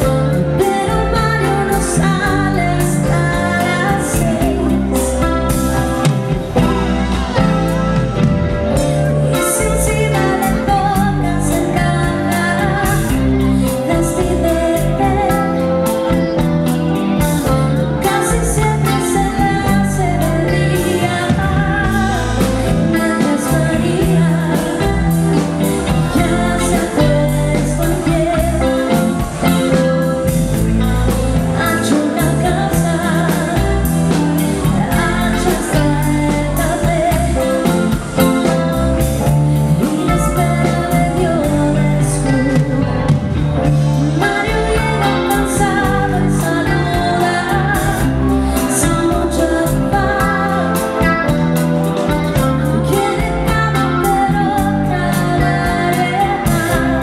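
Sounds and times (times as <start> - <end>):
bass guitar: 0.0 - 57.0
drum kit: 0.0 - 57.0
electric guitar: 0.0 - 57.0
woman singing: 0.0 - 57.0.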